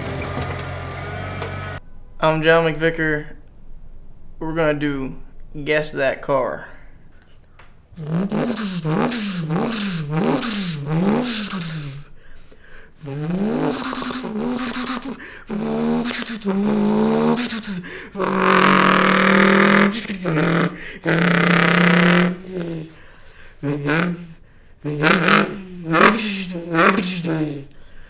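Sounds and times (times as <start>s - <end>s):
man imitating car engine: 8.0s - 12.2s, 12.9s - 27.8s.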